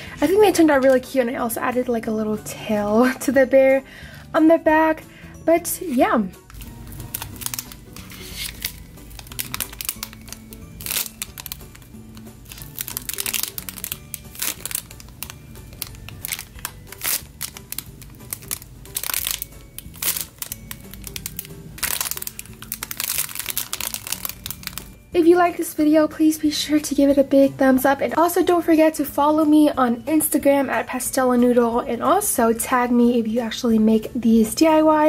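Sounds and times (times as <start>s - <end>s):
soft background music: 0.0s - 35.0s
plastic bag crinkling: 6.5s - 25.0s.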